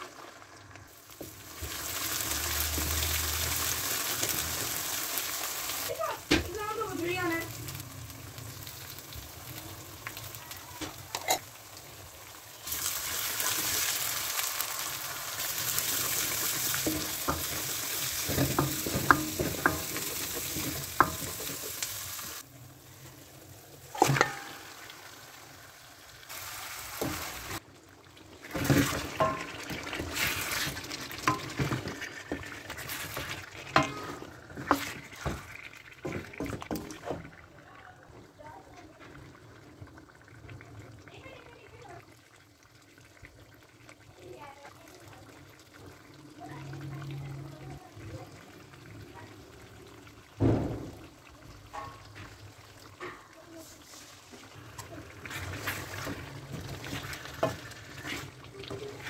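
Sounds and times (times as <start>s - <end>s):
paste sizzling in hot oil: 0.0s - 37.2s, 42.8s - 59.0s
chicken frying: 0.0s - 59.0s
spoon scraping a pan: 11.1s - 11.5s, 15.9s - 22.4s, 24.0s - 24.7s, 28.5s - 35.4s, 53.0s - 59.0s.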